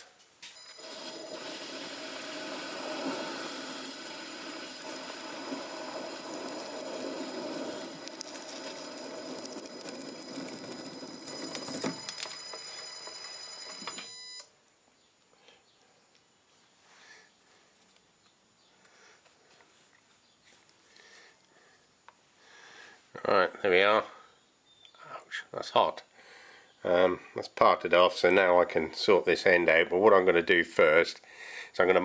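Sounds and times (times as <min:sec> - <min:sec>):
lathe running down: 0:00.6 - 0:14.2
lathe motor whine: 0:00.6 - 0:14.4
tool cutting steel: 0:00.7 - 0:12.2.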